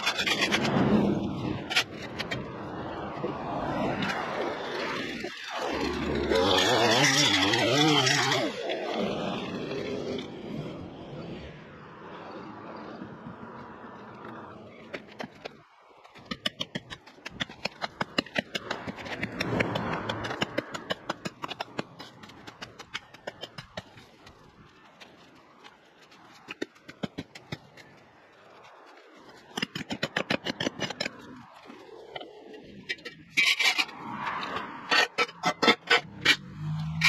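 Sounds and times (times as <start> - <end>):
garden tool scraping: 0.0 - 2.4, 5.1 - 9.0, 32.1 - 37.0.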